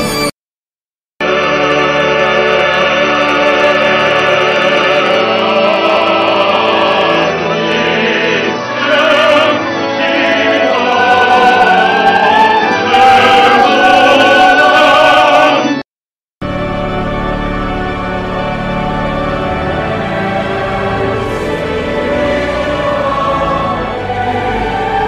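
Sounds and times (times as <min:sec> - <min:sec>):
operatic choir singing: 0:01.2 - 0:15.8, 0:17.7 - 0:25.0
different music piece: 0:16.4 - 0:25.0.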